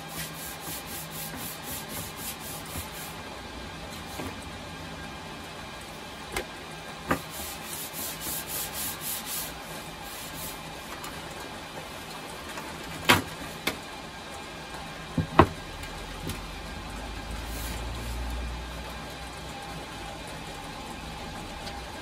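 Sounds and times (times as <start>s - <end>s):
paper towel wiping metal panel: 0.0s - 3.2s, 7.1s - 10.9s.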